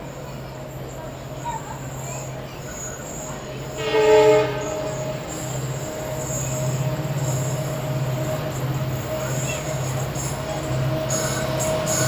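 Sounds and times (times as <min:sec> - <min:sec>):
train rumbling: 0:00.0 - 0:12.0
locomotive horn blast: 0:03.7 - 0:05.4.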